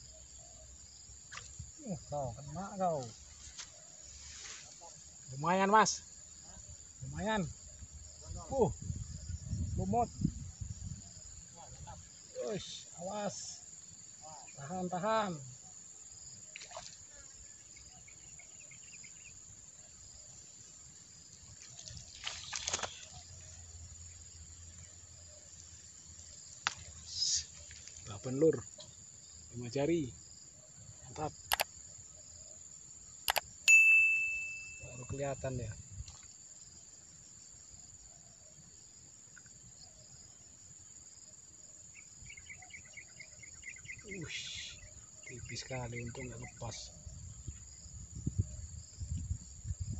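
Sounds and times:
high insect buzz: 0:00.0 - 0:49.9
fish splashing at surface: 0:21.6 - 0:23.1
high-pitched insect chirring: 0:31.0 - 0:32.4, 0:33.0 - 0:36.9.

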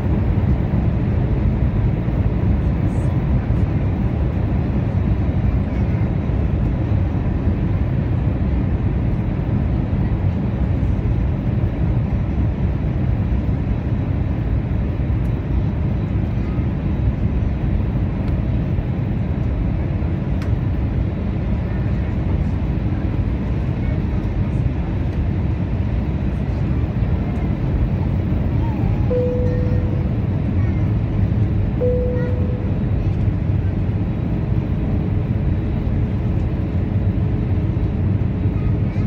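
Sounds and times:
airliner cabin engine rumble: 0:00.0 - 0:39.0
faint steady tone: 0:29.1 - 0:30.3, 0:31.8 - 0:33.0.

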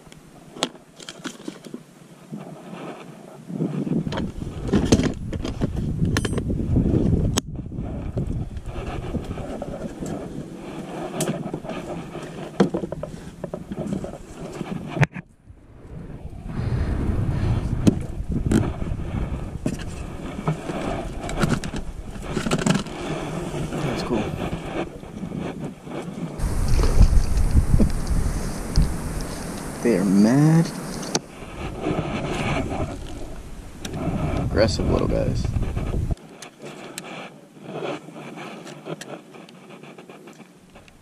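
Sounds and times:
low microphone rumble: 0:15.3 - 0:36.2.

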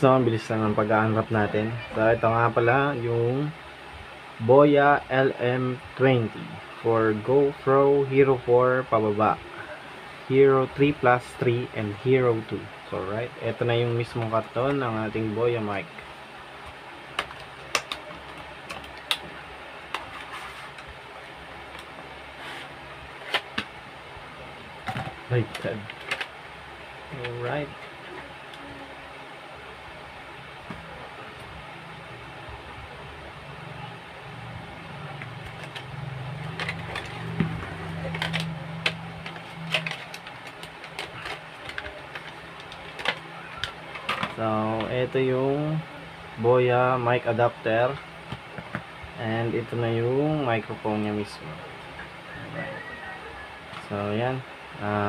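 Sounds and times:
steady low hiss: 0:00.0 - 0:55.0
steady low hum: 0:00.0 - 0:55.0.

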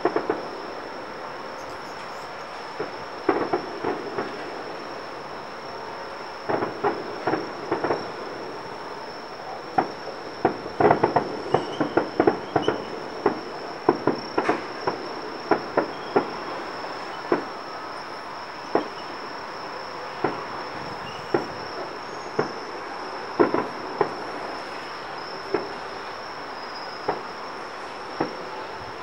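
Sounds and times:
distant fireworks bangs: 0:00.0 - 0:29.0
high-pitched insect trill: 0:00.1 - 0:29.0.

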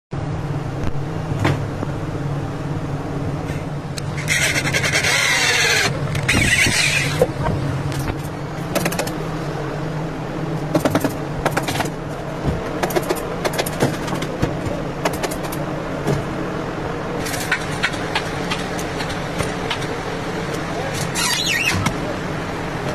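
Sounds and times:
electric drill boring into wood: 0:04.2 - 0:07.2
sharp clicks and knocks: 0:06.1 - 0:09.2, 0:10.7 - 0:16.2.

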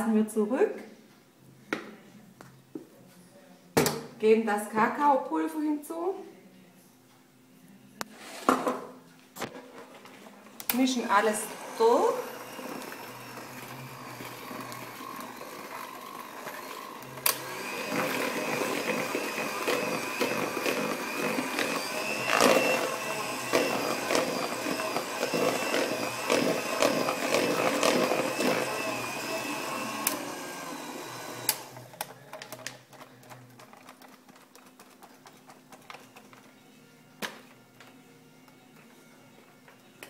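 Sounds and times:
electric hand mixer running: 0:10.8 - 0:32.0.

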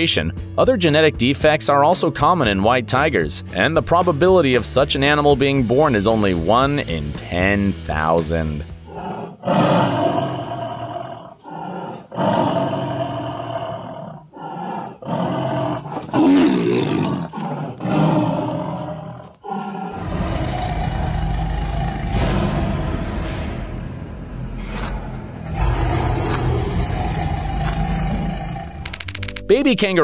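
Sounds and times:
tiger snarling and roaring: 0:08.8 - 0:29.2.

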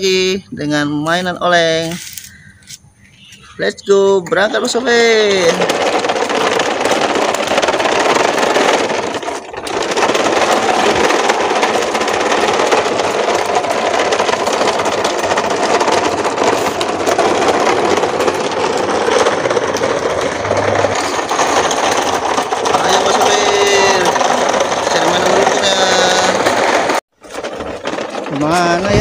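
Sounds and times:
toy trucks rattling on concrete: 0:00.0 - 0:29.0.

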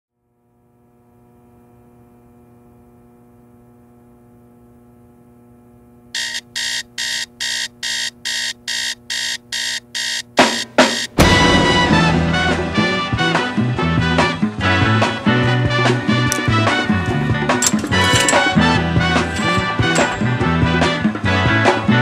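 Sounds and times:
faint steady hum: 0:00.2 - 0:10.4
alarm clock beeping: 0:06.2 - 0:11.2.

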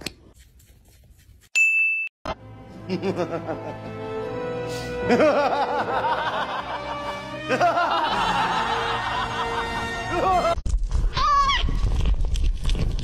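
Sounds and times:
background music: 0:02.3 - 0:10.6.

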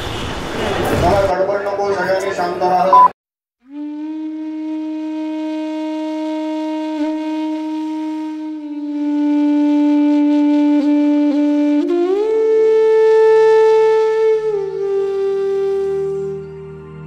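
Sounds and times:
wind instrument long note: 0:03.6 - 0:17.0.

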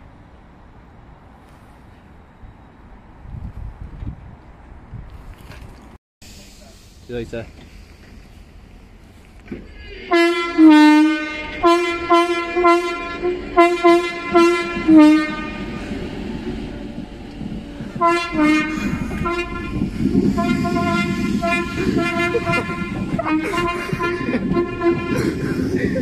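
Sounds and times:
train running rumble: 0:06.3 - 0:26.0
two-tone train horn toots: 0:09.7 - 0:25.6.

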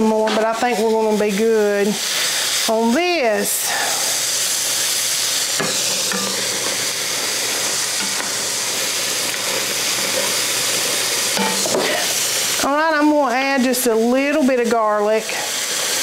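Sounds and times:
onions sizzling in a skillet: 0:00.0 - 0:16.0.

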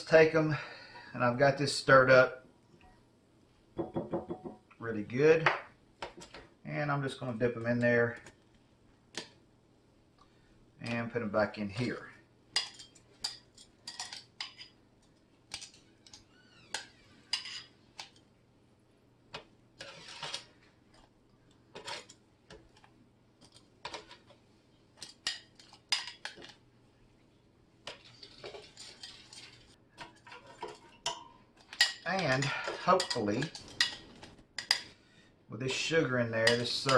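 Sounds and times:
tongs clattering on fryer basket: 0:12.6 - 0:14.7, 0:25.0 - 0:26.6, 0:27.9 - 0:34.9, 0:36.4 - 0:36.9
metal tongs clinking on glass bowl: 0:31.0 - 0:34.0.

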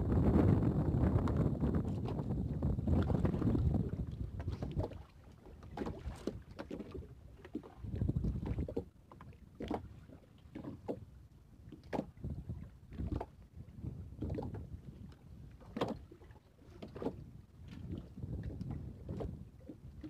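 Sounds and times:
wind on microphone: 0:00.0 - 0:20.0.

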